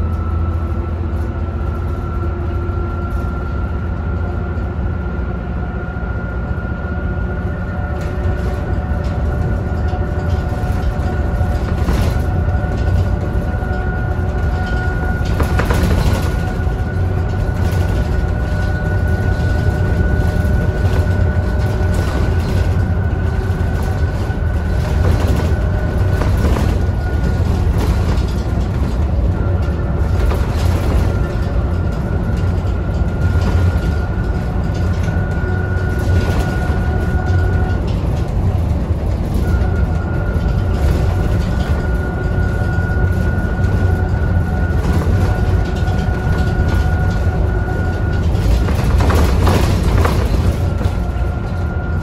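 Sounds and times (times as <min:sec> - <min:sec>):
diesel bus engine rumble: 0:00.0 - 0:52.0.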